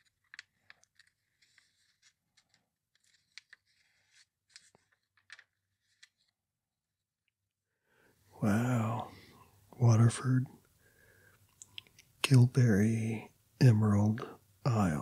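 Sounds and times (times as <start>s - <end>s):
paper pages rustling: 0.0s - 7.0s.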